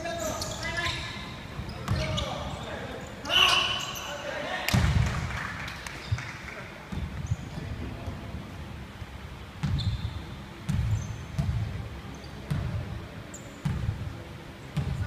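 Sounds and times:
shoe squeaks: 0.0 - 4.3, 9.6 - 11.4, 13.3 - 13.7
basketball bouncing on wooden floor: 10.7 - 11.6.

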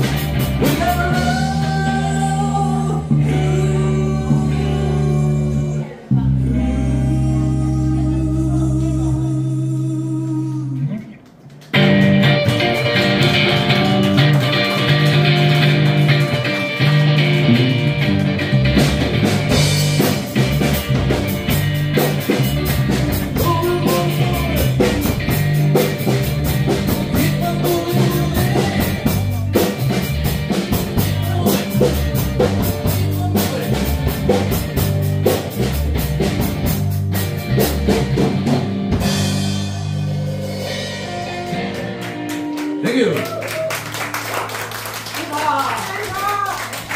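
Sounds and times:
drum kit beat: 0.0 - 3.6, 11.7 - 43.1
bass guitar: 0.0 - 46.9
electric guitar: 0.0 - 46.9.

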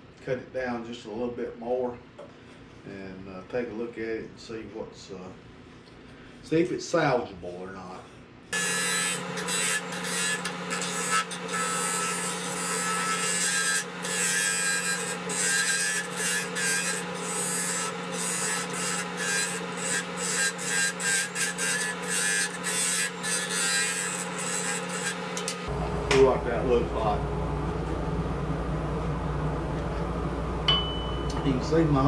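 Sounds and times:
turning tool scraping wood: 8.6 - 25.7
wood lathe humming: 8.6 - 32.0.

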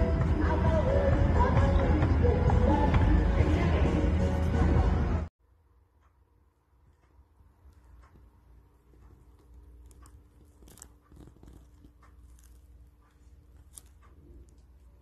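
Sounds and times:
handling clicks and crackles: 7.0 - 15.0.

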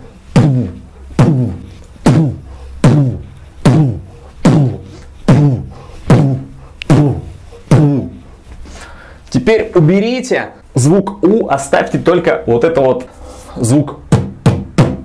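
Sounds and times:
beatboxed kick drum: 0.0 - 8.6, 13.6 - 15.0.

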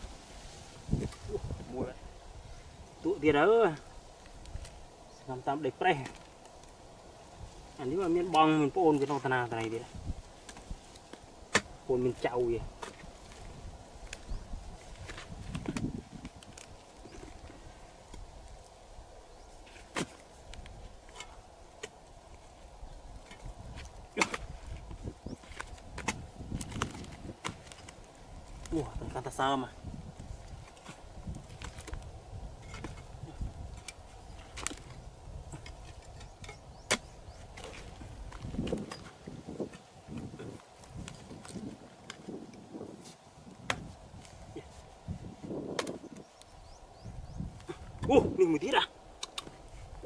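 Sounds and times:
digging tool knocking dry mud: 10.4 - 11.8, 23.3 - 24.7
stick knocking into dry mud: 23.8 - 24.5.

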